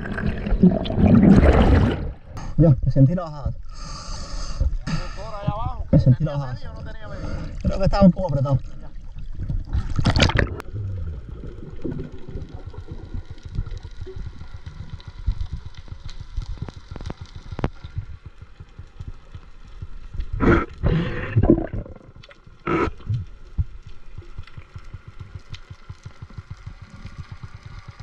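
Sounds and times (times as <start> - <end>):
water rushing bursts: 0.0 - 2.4.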